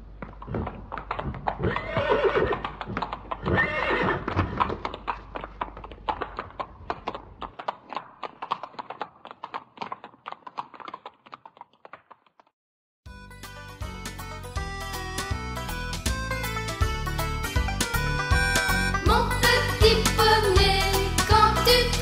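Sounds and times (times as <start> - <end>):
hoof clip-clops: 0.0 - 12.5
horse whinnying: 1.3 - 4.8.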